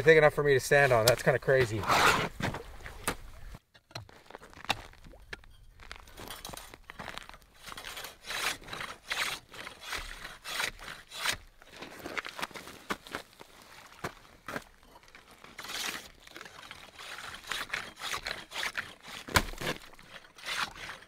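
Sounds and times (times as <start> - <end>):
ice saw rasping through ice: 0.2 - 2.4, 6.2 - 12.8, 15.4 - 21.0.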